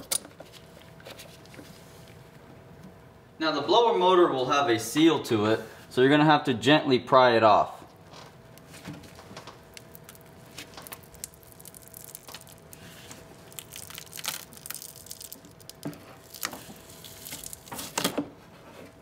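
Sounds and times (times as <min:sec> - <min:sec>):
seal crackling and tearing: 0:08.6 - 0:18.1.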